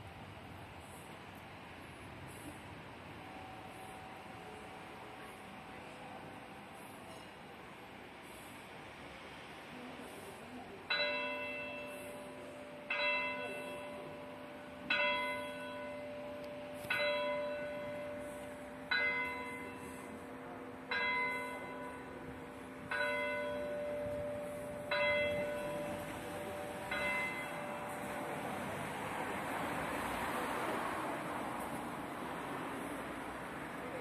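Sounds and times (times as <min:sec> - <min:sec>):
church bell tolling: 0:10.9 - 0:28.8.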